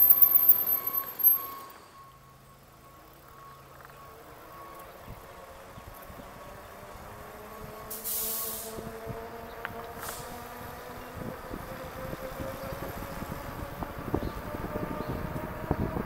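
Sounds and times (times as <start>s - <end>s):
electric bike motor whining: 0.0s - 2.2s
short hiss: 8.0s - 8.7s.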